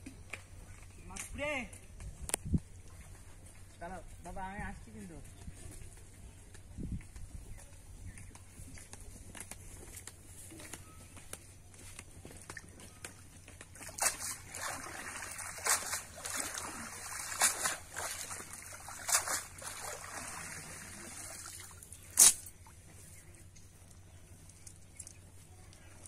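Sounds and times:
water pouring off a net: 13.8s - 21.8s.

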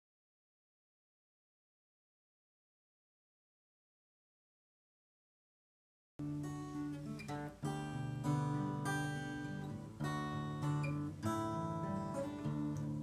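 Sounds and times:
acoustic guitar strumming chords: 6.2s - 13.0s.

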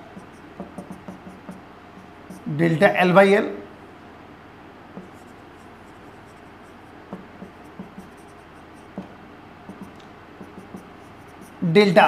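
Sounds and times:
marker writing on whiteboard: 0.0s - 2.5s, 5.0s - 11.6s
room hiss: 0.0s - 12.0s
marker taps: 0.2s - 1.6s, 5.0s - 5.2s, 7.1s - 11.6s.

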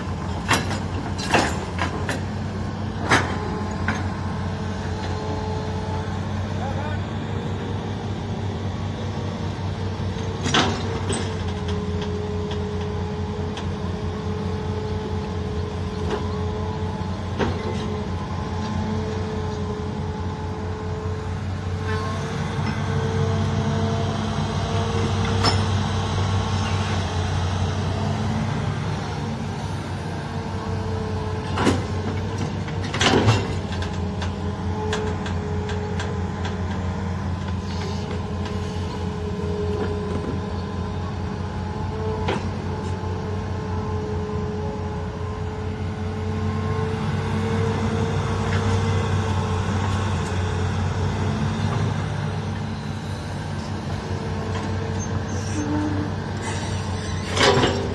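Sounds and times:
excavator diesel engine running: 0.0s - 57.9s
hydraulic whine: 47.5s - 57.9s.

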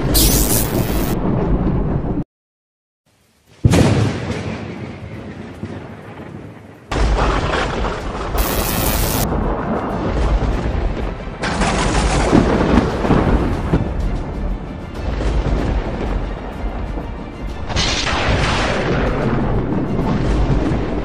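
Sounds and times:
blast sound effects: 0.0s - 1.2s, 8.4s - 9.3s.

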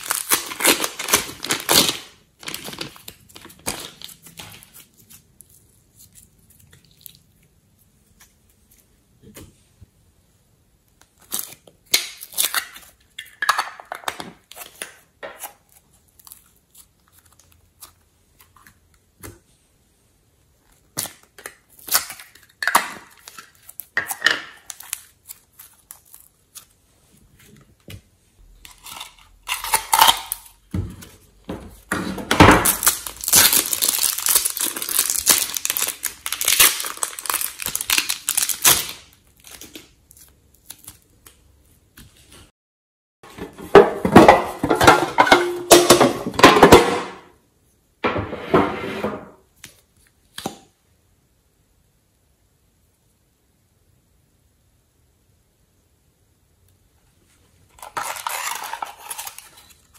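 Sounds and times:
plastic containers clicking and crinkling: 0.0s - 4.9s, 28.6s - 40.0s
clay squishing and crackling: 0.0s - 42.5s.

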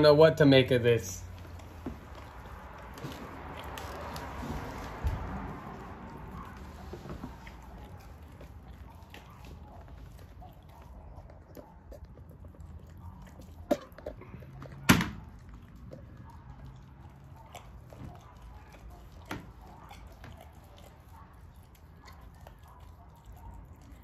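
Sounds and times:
dog licking and mouthing food: 0.2s - 24.0s.

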